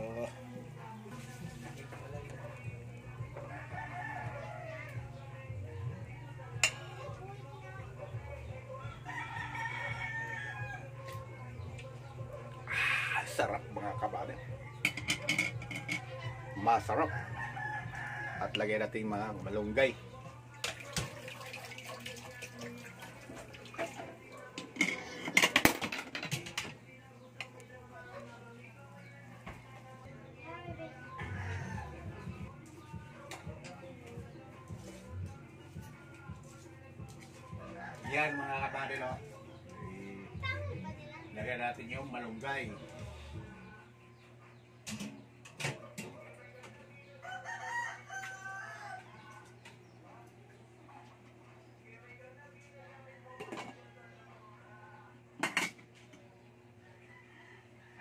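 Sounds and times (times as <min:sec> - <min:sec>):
rooster crowing: 0:03.4 - 0:05.2, 0:08.8 - 0:11.2, 0:16.9 - 0:18.6, 0:31.1 - 0:32.4, 0:37.6 - 0:38.9, 0:47.2 - 0:49.4, 0:56.8 - 0:58.0.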